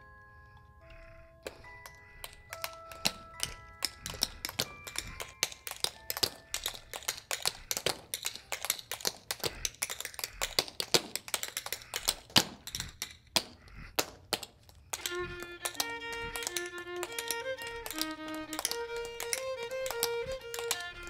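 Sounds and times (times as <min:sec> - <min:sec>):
shoes tapping on hard floor: 0:01.5 - 0:21.0
fiddle playing: 0:15.0 - 0:21.0.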